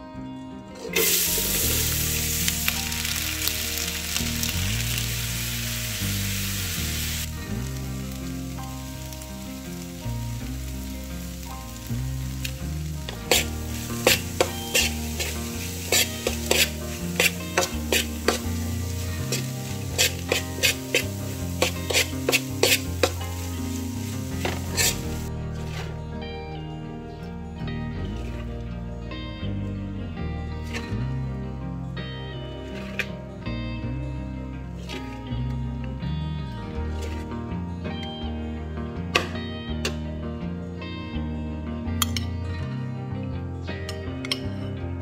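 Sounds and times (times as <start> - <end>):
background music with bass: 0.0 - 45.0
corn sizzling in a wok: 1.0 - 25.3
metal spoon scraping a wok: 13.2 - 26.0.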